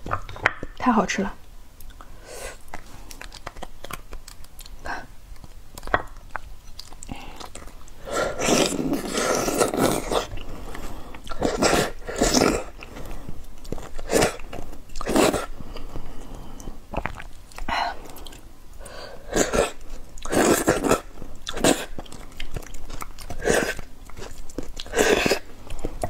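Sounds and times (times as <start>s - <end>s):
small mouth clicks: 1.8s - 8.0s.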